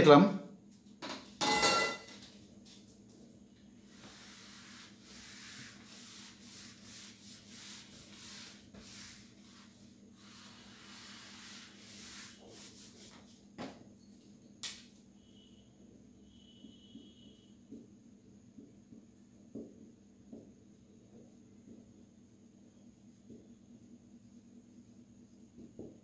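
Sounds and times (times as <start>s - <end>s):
eraser rubbing whiteboard: 3.8s - 13.4s.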